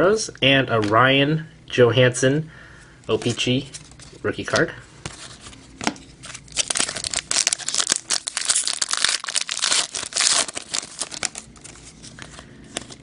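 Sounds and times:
foil wrapper tearing and crinkling: 6.2 - 11.9.

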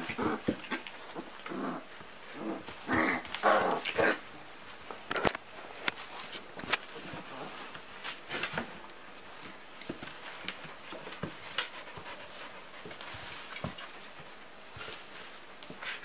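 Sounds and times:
scuffling against bedding: 0.0 - 16.0
puppy sounds: 10.1 - 16.0.

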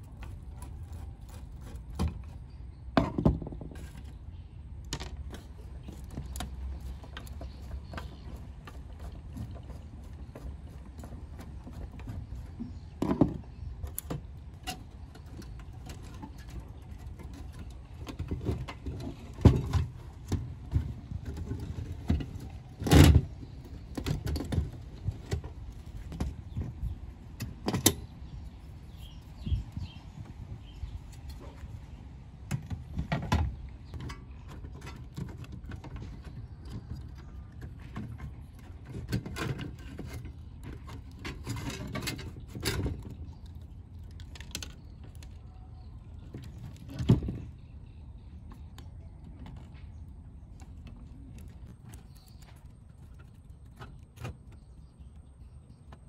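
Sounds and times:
parts set down on wooden bench: 3.0 - 4.1.

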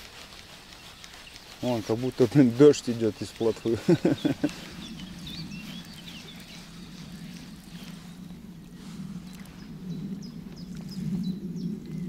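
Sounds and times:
birds chirping: 0.0 - 12.0
steady low hum: 0.0 - 12.0.

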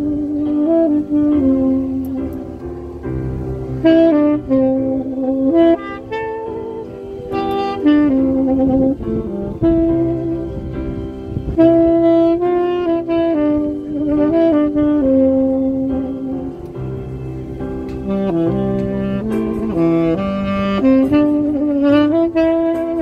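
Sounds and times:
tenor saxophone slow melody: 0.0 - 23.0.

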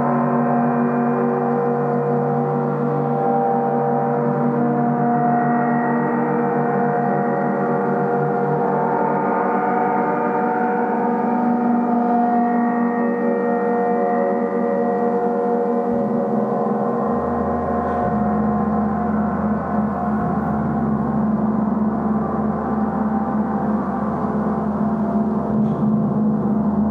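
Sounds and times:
gong ringing: 0.0 - 26.9
deep low hum: 14.8 - 26.9.

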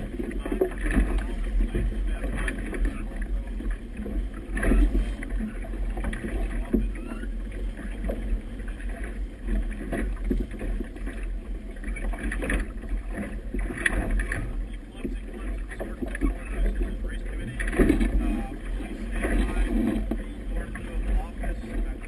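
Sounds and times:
water slapping against boat hull: 0.0 - 22.0.

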